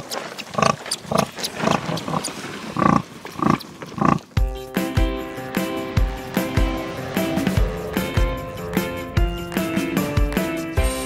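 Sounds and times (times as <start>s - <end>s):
sow grunting: 0.4s - 4.4s
music with deep beat: 4.4s - 11.0s.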